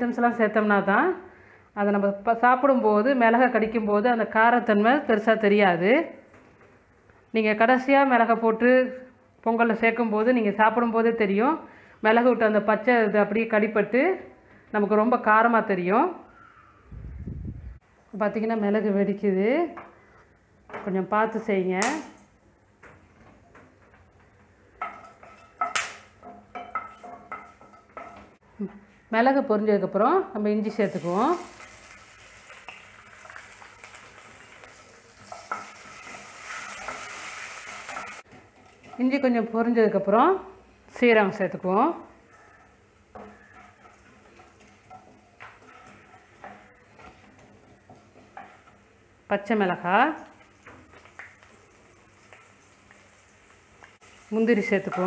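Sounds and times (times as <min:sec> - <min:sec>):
spatula tapping and scraping pan: 0:24.8 - 0:28.4, 0:35.2 - 0:37.1, 0:42.5 - 0:49.0, 0:54.7 - 0:55.0
seeds frying in ghee: 0:30.6 - 0:39.8, 0:40.9 - 0:55.0.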